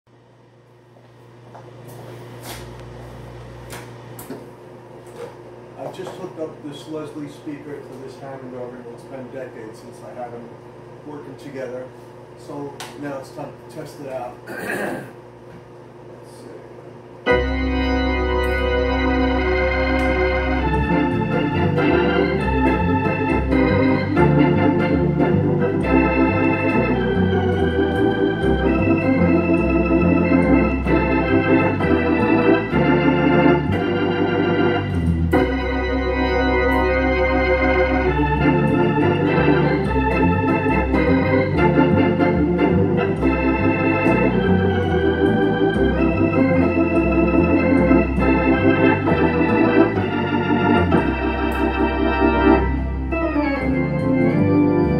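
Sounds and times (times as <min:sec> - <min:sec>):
organ chords through rotating speaker: 0:16.9 - 0:54.9.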